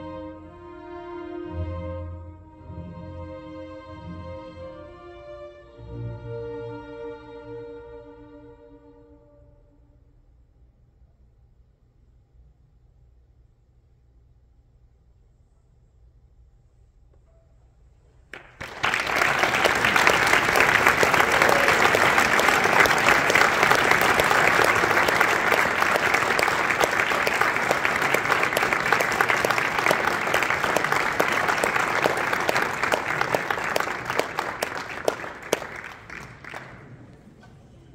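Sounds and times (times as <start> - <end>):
audience applauding: 18.3 - 37.9.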